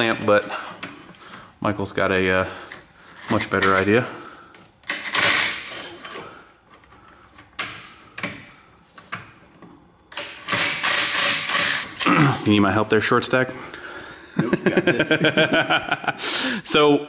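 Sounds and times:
ratchet clicking and scraping: 0:10.1 - 0:12.0.

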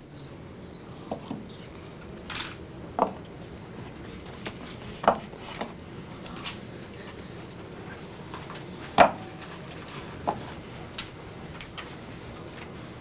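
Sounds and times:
paper boxes knocking on table: 0:05.0 - 0:05.8.

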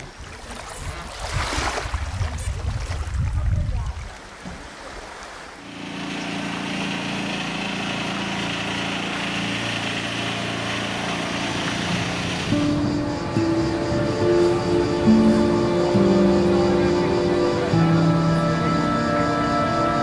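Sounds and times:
wind: 0:00.0 - 0:20.0
waves hissing: 0:05.0 - 0:20.0
music with held chord: 0:11.2 - 0:20.0.

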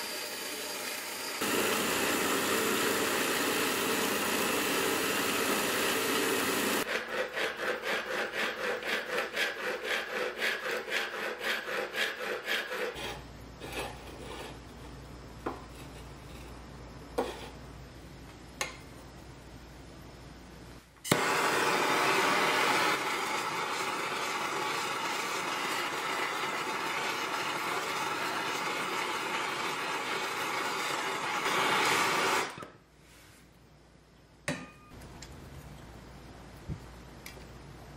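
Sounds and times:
blowtorch hissing: 0:00.0 - 0:06.9, 0:21.1 - 0:32.6
file rasping on steel: 0:06.8 - 0:14.6.

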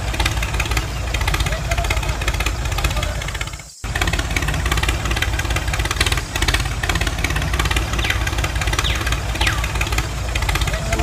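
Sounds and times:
tractor engine running: 0:00.0 - 0:11.0.

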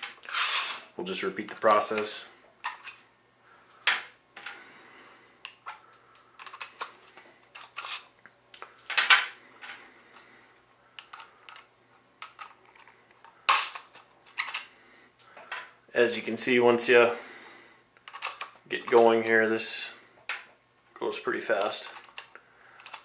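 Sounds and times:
metallic clinks of brass cases: 0:15.4 - 0:15.9.

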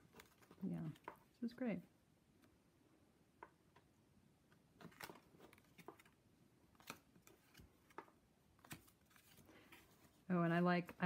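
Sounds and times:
cards clicking and sliding: 0:04.6 - 0:10.1.

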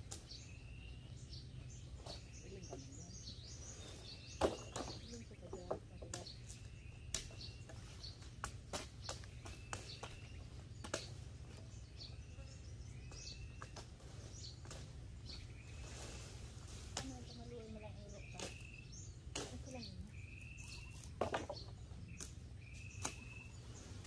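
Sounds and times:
birds chirping faintly: 0:00.0 - 0:24.0
machetes chopping brush: 0:06.1 - 0:11.6, 0:13.0 - 0:15.4, 0:18.2 - 0:23.6.

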